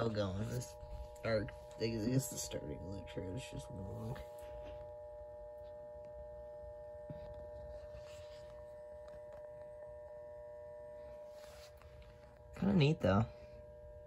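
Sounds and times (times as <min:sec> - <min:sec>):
electrical hum: 0:00.0 - 0:14.0.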